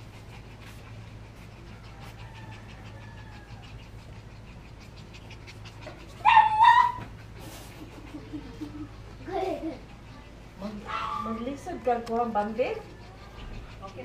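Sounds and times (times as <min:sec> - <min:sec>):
puppies panting: 0:00.0 - 0:14.0
puppy whining: 0:00.9 - 0:14.0
puppy yelping: 0:04.8 - 0:07.3, 0:10.7 - 0:11.6.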